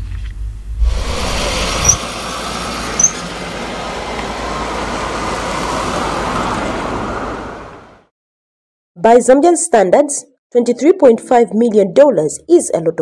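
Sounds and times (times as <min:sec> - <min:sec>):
traffic driving past: 0:00.8 - 0:08.1
short high chirps: 0:03.0 - 0:03.2.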